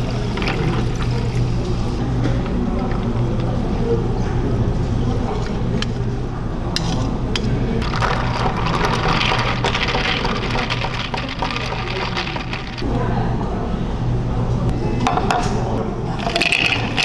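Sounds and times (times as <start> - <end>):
liquid pouring over ice: 7.8 - 12.8, 16.2 - 17.0.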